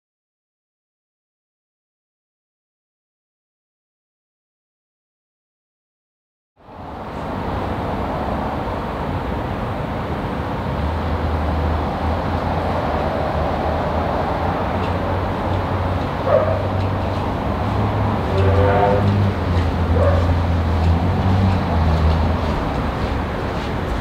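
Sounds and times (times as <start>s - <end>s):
diesel locomotive rumbling: 6.6s - 24.0s.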